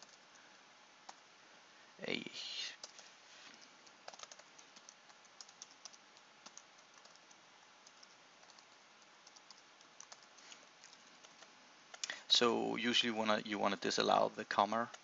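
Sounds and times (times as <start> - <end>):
keyboard typing: 0.0 - 0.4, 2.8 - 3.0, 3.8 - 12.1
faint steady hiss: 0.0 - 15.0.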